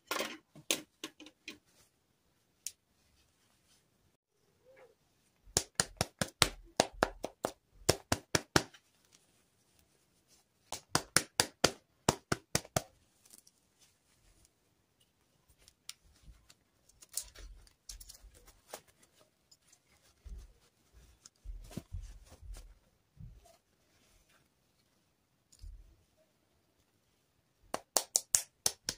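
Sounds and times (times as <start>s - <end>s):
plastic doll clicks and taps: 27.7s - 28.9s.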